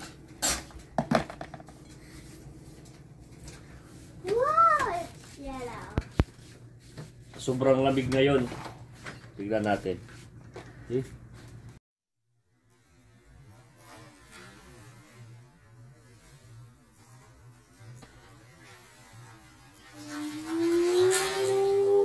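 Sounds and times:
long rising tone: 19.5s - 22.0s.

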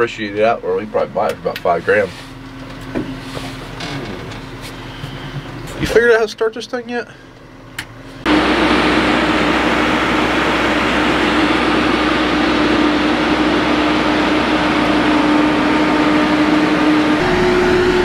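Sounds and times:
constant hum: 0.0s - 18.0s
roller diesel engine running: 7.1s - 18.0s.

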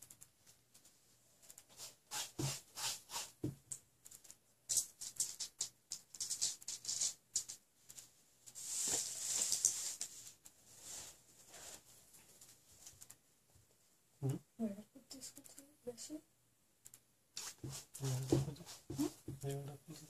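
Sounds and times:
brush scrubbing on canvas: 1.7s - 3.4s, 17.4s - 19.2s.

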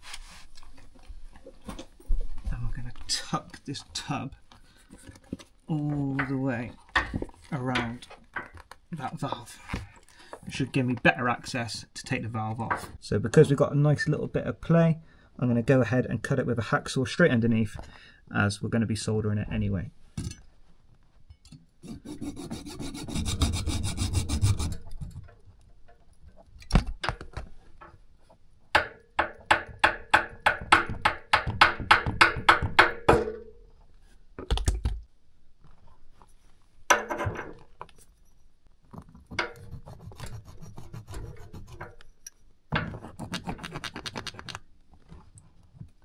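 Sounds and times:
hacksaw cutting copper pipe: 21.8s - 24.9s, 42.8s - 44.6s.

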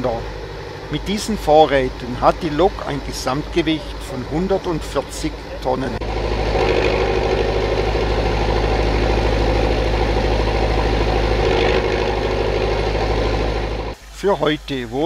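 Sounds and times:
crane diesel engine pulsing: 0.0s - 14.0s.

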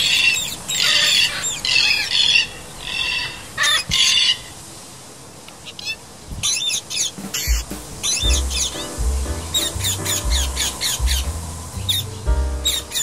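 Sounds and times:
parakeets squawking: 6.4s - 13.0s.

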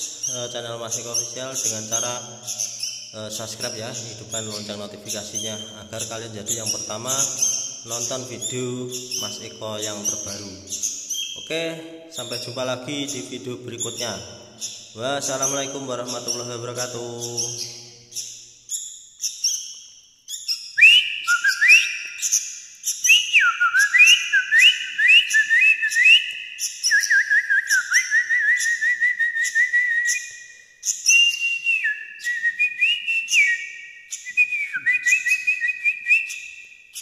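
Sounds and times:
bird chirping: 0.0s - 37.0s
whistled notes: 20.7s - 36.6s.

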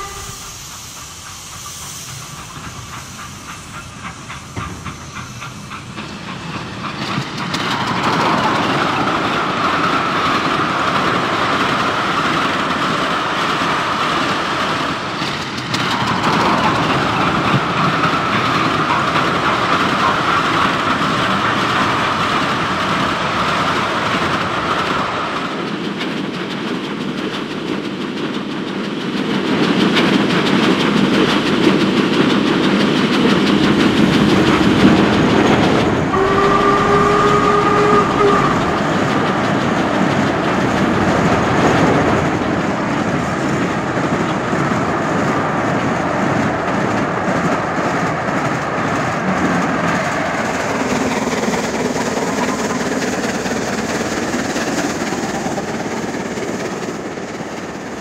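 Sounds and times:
steam whistle: 0.0s - 1.0s, 36.1s - 39.4s
steam locomotive running: 0.0s - 58.0s.

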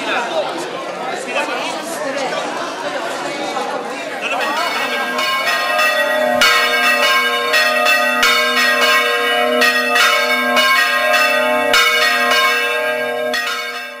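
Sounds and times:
church bells pealing: 4.2s - 14.0s.

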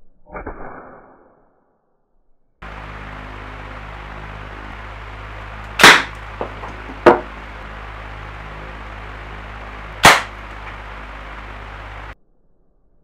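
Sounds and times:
steady low hum: 2.6s - 12.2s
gunshots ringing in small room: 5.8s - 6.2s, 10.0s - 10.4s.

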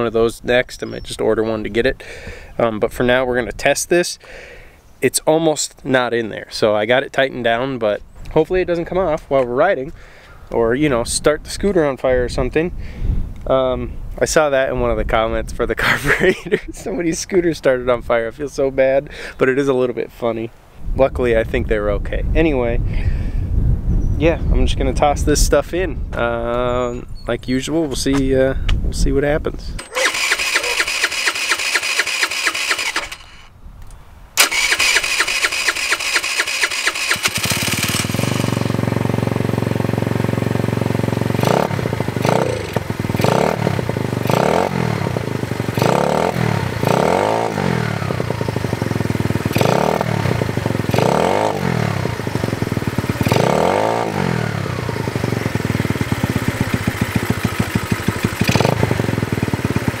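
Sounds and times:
electric starter cranking: 29.8s - 33.5s, 34.4s - 39.3s, 56.7s - 59.0s
scooter engine revving: 29.8s - 33.5s, 34.4s - 60.0s.

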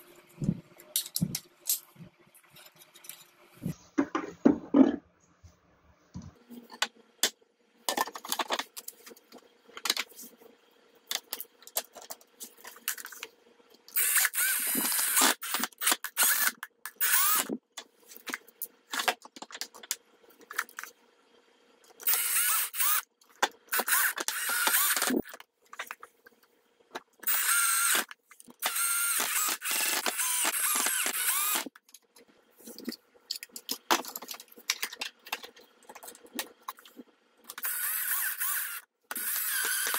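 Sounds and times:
plastic parts clicking and knocking: 0.9s - 1.9s, 6.7s - 10.1s, 11.1s - 13.3s, 13.9s - 20.9s, 21.9s - 39.9s
power screwdriver running: 14.0s - 17.5s, 22.0s - 23.0s, 23.7s - 25.2s, 27.2s - 31.7s, 37.5s - 39.9s.

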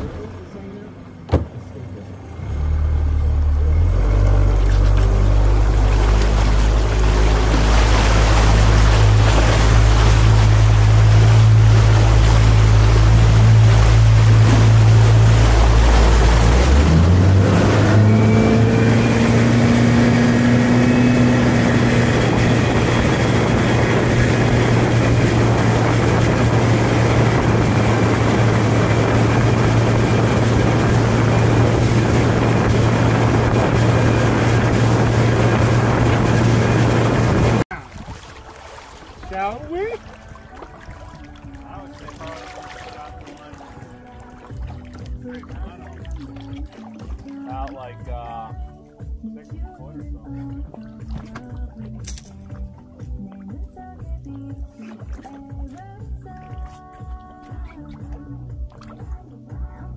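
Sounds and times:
rushing water: 0.0s - 59.5s
outboard motor running: 0.0s - 59.9s
wind on microphone: 4.9s - 46.6s.

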